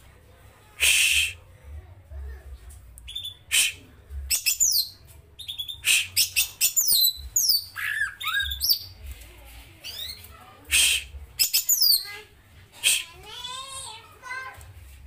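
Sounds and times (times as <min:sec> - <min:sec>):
bird singing whistles: 0:03.1 - 0:08.9
harsh scratchy bird calls: 0:03.1 - 0:09.0, 0:09.8 - 0:12.2, 0:12.8 - 0:13.2.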